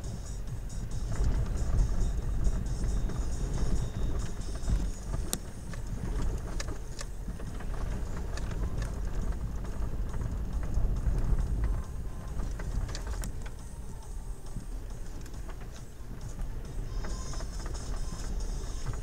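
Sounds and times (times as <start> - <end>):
car engine and tyres rumbling: 0.0 - 19.0.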